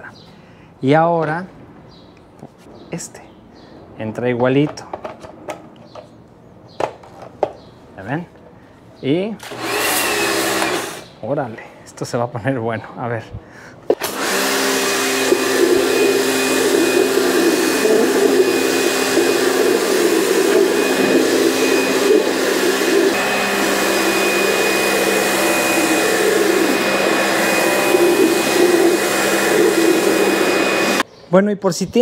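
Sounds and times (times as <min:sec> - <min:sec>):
pressure washer motor hum and whine: 0:09.4 - 0:11.1, 0:14.0 - 0:31.0.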